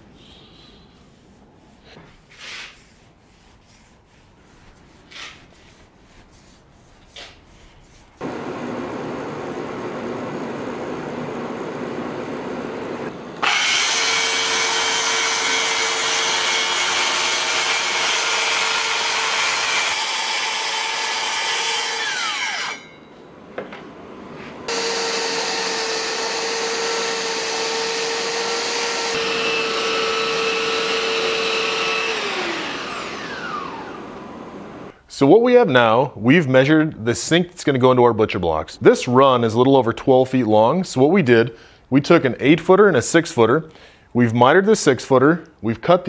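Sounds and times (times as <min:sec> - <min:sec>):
soft rubbing noise: 0:00.0 - 0:08.2
power sander on wood: 0:08.2 - 0:22.8, 0:24.7 - 0:34.9
circular saw cutting wood: 0:13.4 - 0:23.0, 0:24.7 - 0:34.9.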